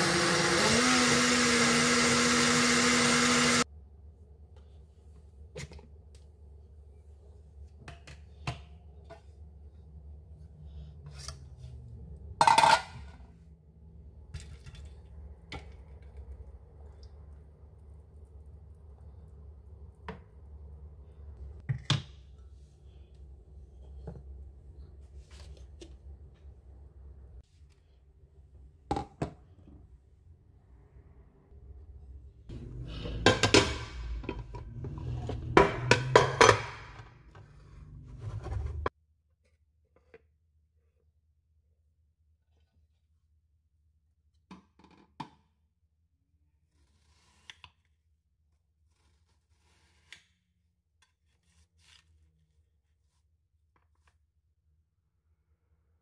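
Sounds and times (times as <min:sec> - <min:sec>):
metal pans clattering on counter: 0:12.4 - 0:13.1, 0:35.3 - 0:37.1
kitchenware clatter: 0:12.4 - 0:13.2, 0:32.8 - 0:37.2.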